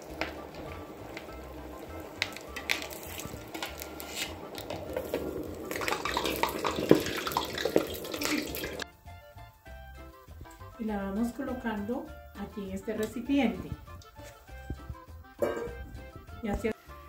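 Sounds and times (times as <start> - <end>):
hot oil sizzling and bubbling: 0.0 - 10.7.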